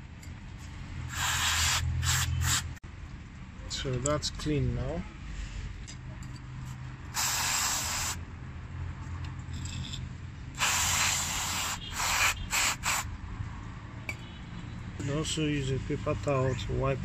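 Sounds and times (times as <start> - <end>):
aerosol spray hissing: 1.1 - 2.7, 7.2 - 8.2, 10.6 - 13.1.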